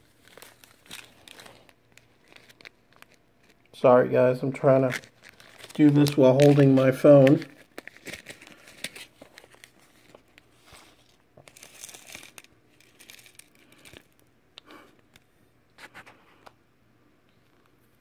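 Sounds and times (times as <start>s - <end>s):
plastic bag crinkling: 0.0s - 3.8s, 4.4s - 14.3s.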